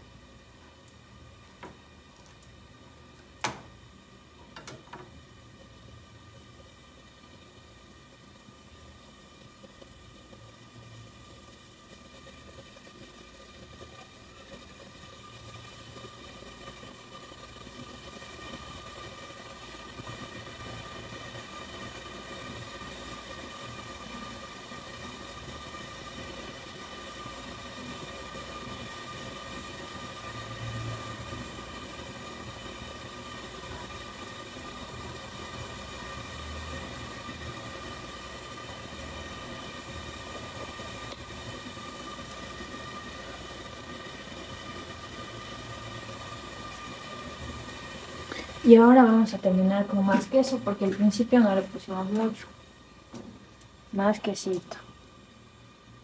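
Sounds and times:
mechanical hum: 0.0s - 56.0s.

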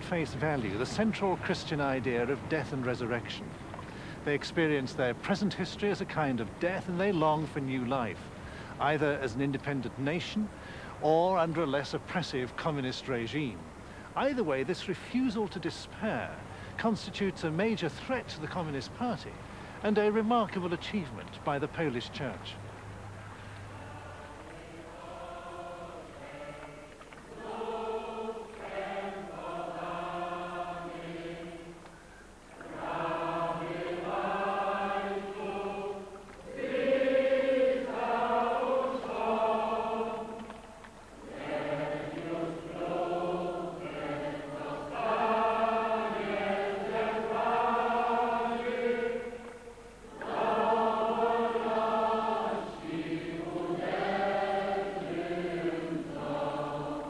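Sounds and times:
choir singing: 23.7s - 31.9s, 32.5s - 57.0s.

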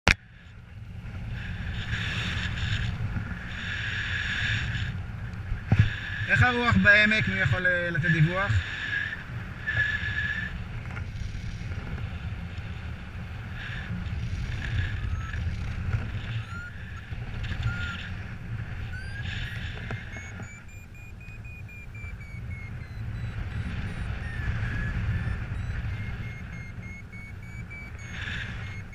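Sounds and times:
wind on microphone: 8.1s - 28.9s
variometer beeping: 13.6s - 28.9s.

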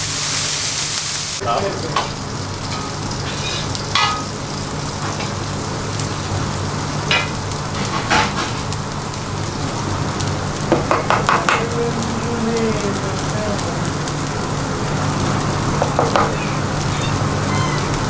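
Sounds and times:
batter sizzling on griddle: 0.0s - 18.0s
bowl scraping griddle: 1.5s - 5.4s, 7.1s - 8.8s, 15.4s - 18.0s.

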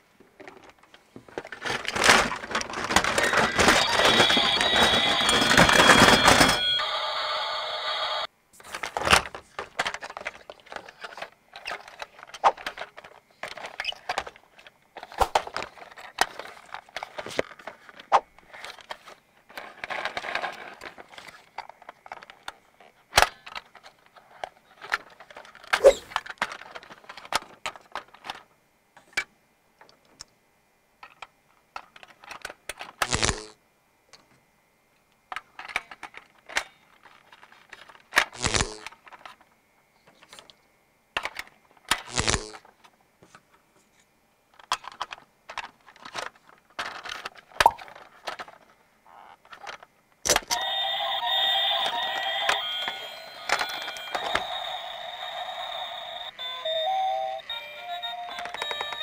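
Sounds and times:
plastic toy clicks and rattles: 1.4s - 6.6s, 9.2s - 18.0s, 18.6s - 28.4s, 31.0s - 33.4s, 35.3s - 39.4s, 44.6s - 48.6s, 49.4s - 59.0s
loud electronic toy tune: 3.3s - 8.3s, 50.5s - 59.0s.

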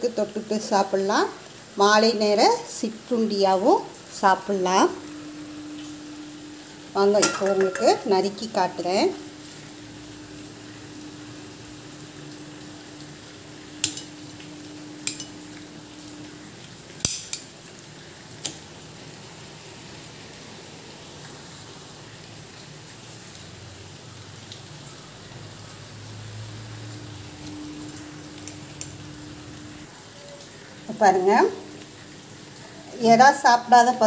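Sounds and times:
steady background hiss: 0.0s - 23.0s, 23.6s - 33.9s
faint steady hum: 0.0s - 34.0s
knife clinking on metal plate: 7.2s - 8.0s.

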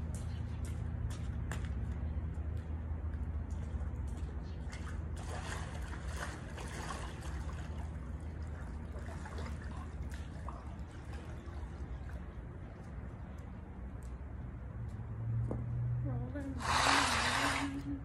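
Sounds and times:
low steady hum: 0.0s - 18.0s
pool water splashing: 4.6s - 13.7s, 16.6s - 18.0s.

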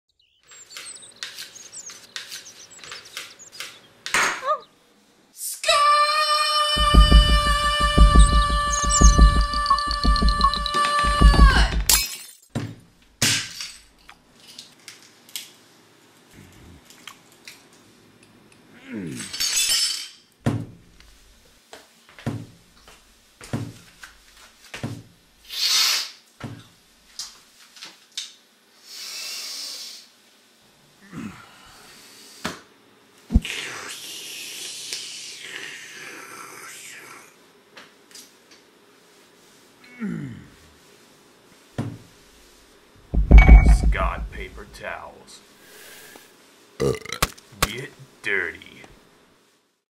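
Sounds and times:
noisy bursts: 6.8s - 11.9s, 43.1s - 44.8s
knocks thuds and clatters: 6.8s - 13.5s, 43.1s - 44.6s.

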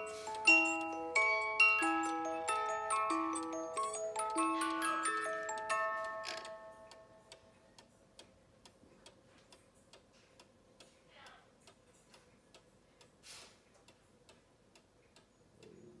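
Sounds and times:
music-box tune: 0.0s - 7.5s
clock ticking: 0.0s - 13.2s, 13.8s - 16.0s.

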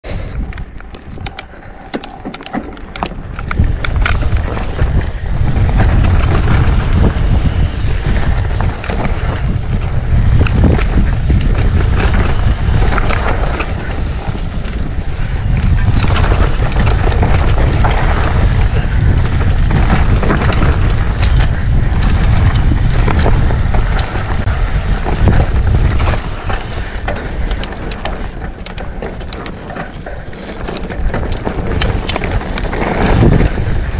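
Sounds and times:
tyres on dirt trail: 0.0s - 33.9s
wind buffeting microphone: 0.0s - 33.9s
bike clicks and rattles: 0.1s - 33.9s.

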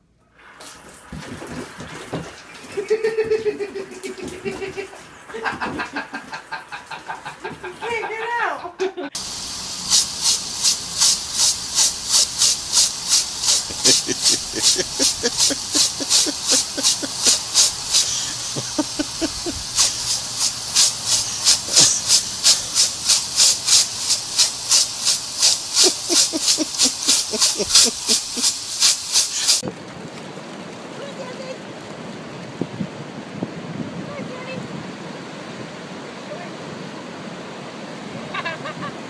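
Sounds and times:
sprinkler water jet hissing: 9.2s - 29.6s.

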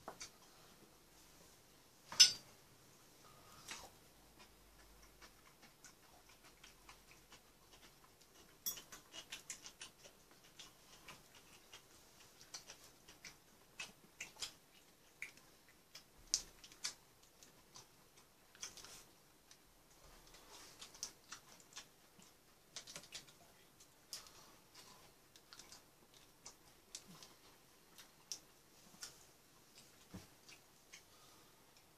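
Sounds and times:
chopsticks and spoon clicking bowls: 8.4s - 9.8s.

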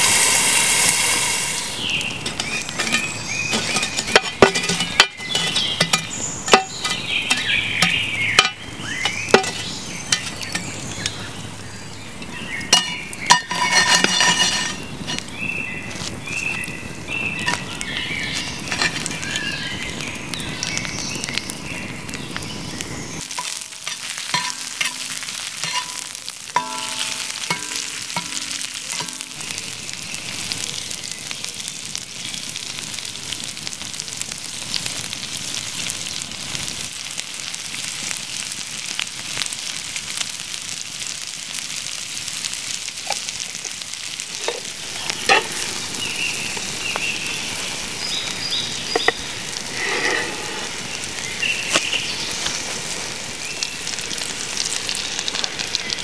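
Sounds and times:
asparagus sizzling in a pan: 0.0s - 56.0s
shovel scraping and clinking: 2.2s - 10.8s, 12.7s - 15.3s, 18.3s - 19.2s, 23.3s - 29.4s, 44.3s - 45.7s.

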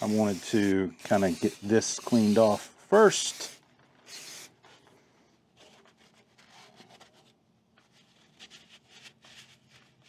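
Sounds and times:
paper towel rubbing metal: 0.0s - 4.7s.

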